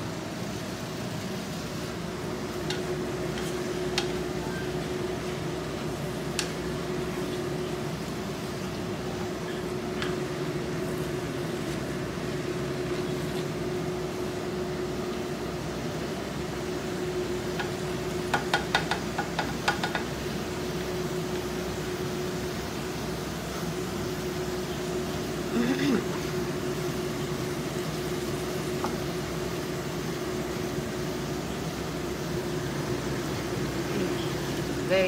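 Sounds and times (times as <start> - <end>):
kitchen fan hum: 0.0 - 35.0
spatula stirring meat in a wok: 0.8 - 14.5, 16.3 - 25.4
spatula knocking against pan: 17.6 - 20.1.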